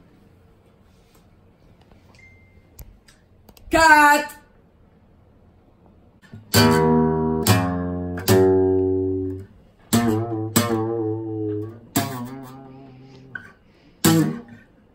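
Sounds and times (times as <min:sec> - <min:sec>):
acoustic guitar chords strummed: 0:06.2 - 0:14.8.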